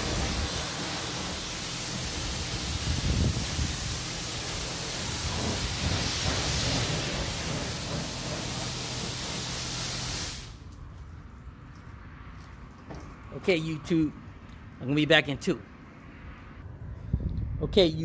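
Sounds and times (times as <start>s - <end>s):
pressure washer spraying water: 0.0s - 10.7s.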